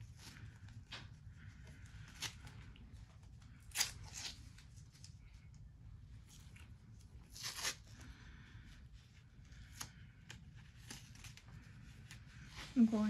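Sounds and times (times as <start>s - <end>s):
tape crinkling: 6.3s - 8.0s, 9.6s - 12.2s.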